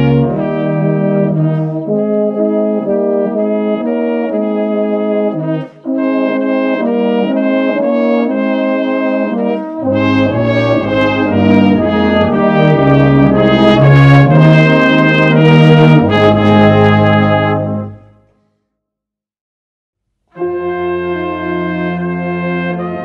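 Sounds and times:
brass band playing: 0:00.0 - 0:18.2, 0:20.4 - 0:23.0
deep bass notes: 0:09.8 - 0:17.8.

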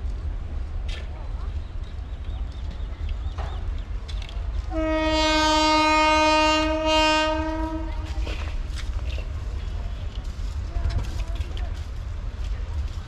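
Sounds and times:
steady low rumble: 0:00.0 - 0:13.0
train horn long note: 0:04.7 - 0:08.4.

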